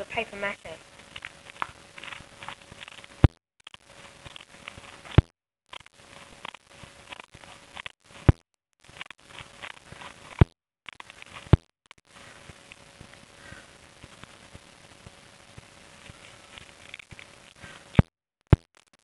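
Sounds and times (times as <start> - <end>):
paper rustling: 1.0 - 3.2.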